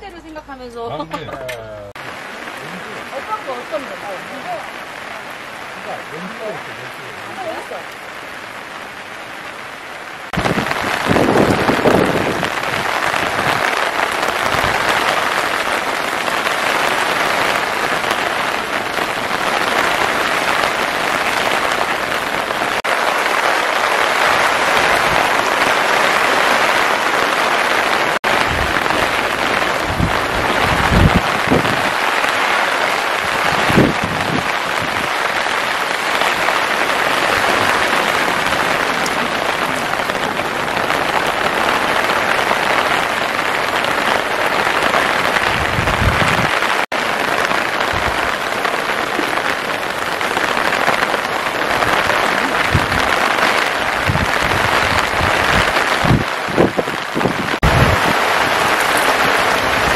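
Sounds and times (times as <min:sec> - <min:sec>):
rain on tarp and gravel: 0:00.9 - 0:59.9.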